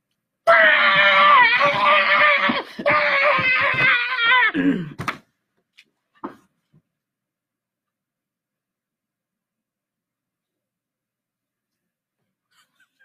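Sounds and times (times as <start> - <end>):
person screaming: 0.5 - 5.0.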